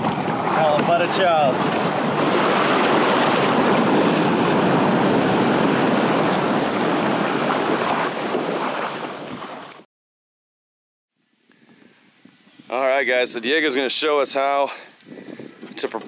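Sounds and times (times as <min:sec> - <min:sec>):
surf washing around kayak hull: 0:00.0 - 0:09.8.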